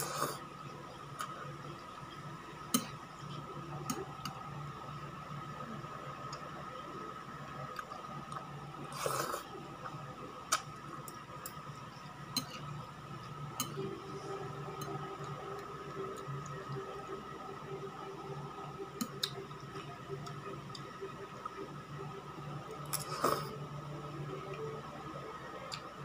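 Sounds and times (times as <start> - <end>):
person slurping noodles: 0.0 - 0.4, 8.9 - 9.5
steady low hum: 0.0 - 26.0.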